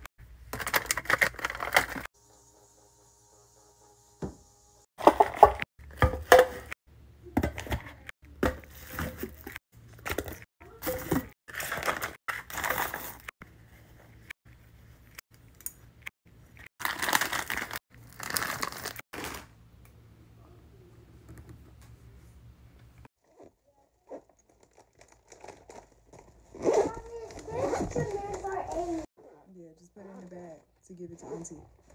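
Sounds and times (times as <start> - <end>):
plastic packaging crinkling: 0.5 - 2.1, 16.8 - 19.5, 24.4 - 26.5.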